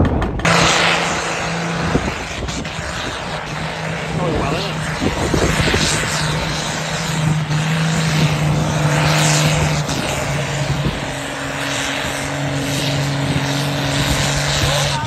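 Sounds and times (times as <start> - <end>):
heavy engine droning: 0.0 - 15.0.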